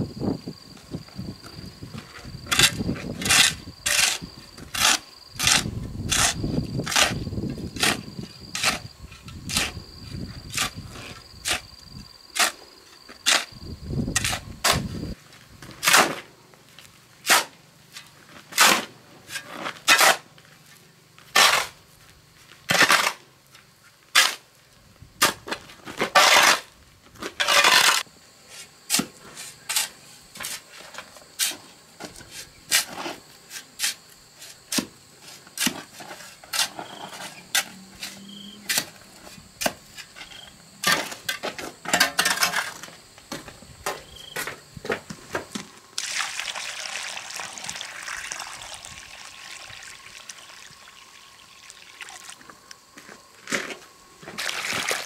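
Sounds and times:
shovel scraping concrete: 1.9s - 7.2s, 7.8s - 9.8s, 12.4s - 13.5s, 14.1s - 16.3s, 17.2s - 20.3s, 21.3s - 21.8s, 22.7s - 23.2s, 24.1s - 24.5s, 25.2s - 43.0s.

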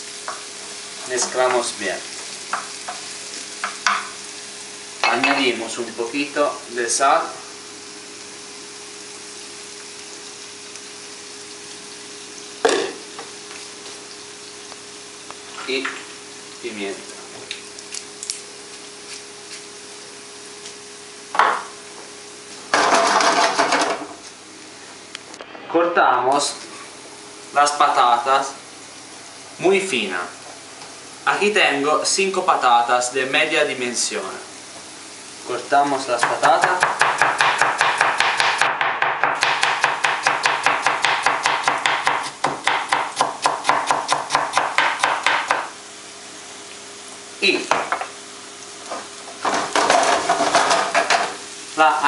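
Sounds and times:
leeks frying in a pan: 0.0s - 25.2s, 26.3s - 52.0s.

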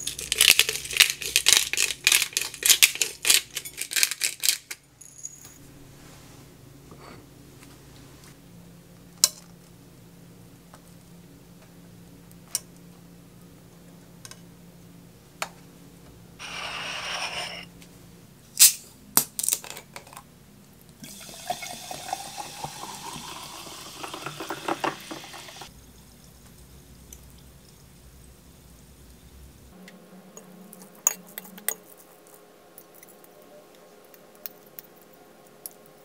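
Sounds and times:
sparkling water pouring into glass: 21.0s - 25.7s.

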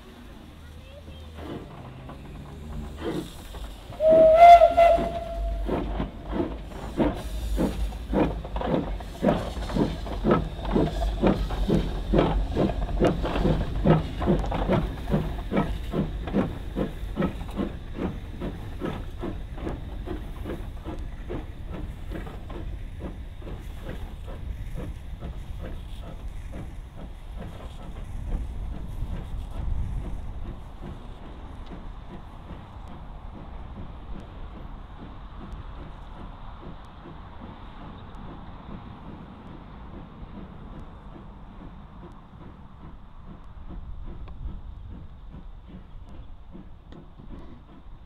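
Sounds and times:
steam locomotive chuffing: 0.0s - 48.0s
steam locomotive whistle: 3.9s - 6.0s.

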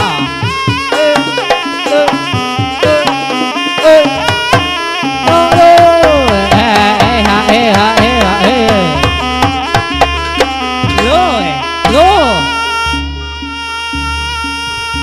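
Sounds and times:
hand drum strokes: 0.0s - 15.0s
melody with bending pitches: 0.0s - 15.0s.

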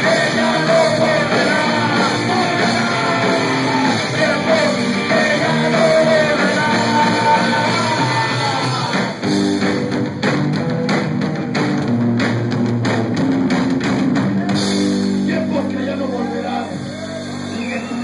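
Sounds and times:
person singing: 0.0s - 9.2s
bass guitar: 0.0s - 18.0s
electric guitar: 0.0s - 18.0s.

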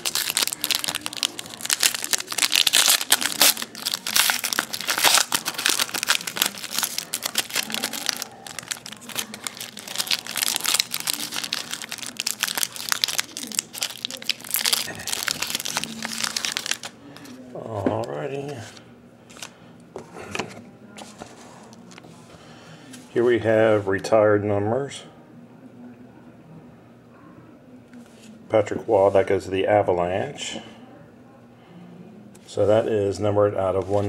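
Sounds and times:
foil wrapper crinkling: 0.0s - 17.4s.

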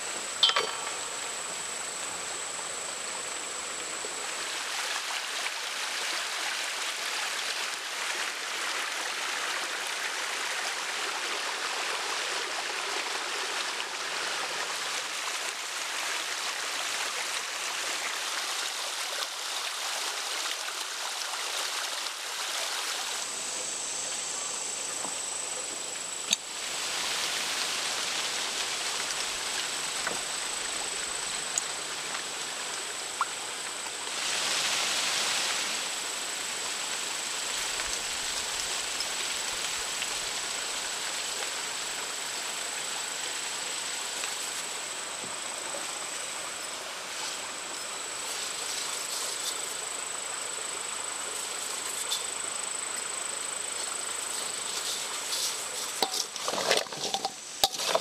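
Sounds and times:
steady hissing noise: 0.0s - 58.0s
insect trilling: 0.1s - 3.0s.

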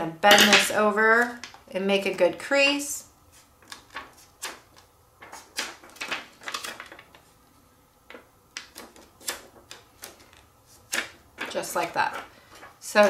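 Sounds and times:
plastic sheet crackling: 3.6s - 7.4s.

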